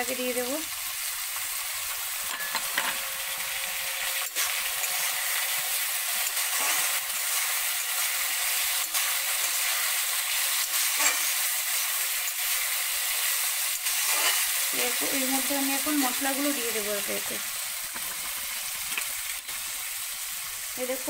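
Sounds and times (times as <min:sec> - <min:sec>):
vegetables sizzling in hot oil: 0:00.0 - 0:21.0.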